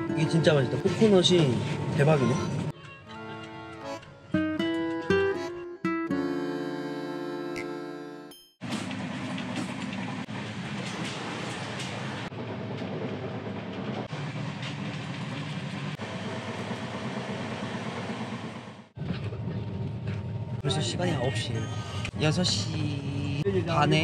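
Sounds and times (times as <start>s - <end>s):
train rumble and rattle: 0.0s - 2.8s, 8.6s - 24.0s
music track: 0.0s - 8.5s.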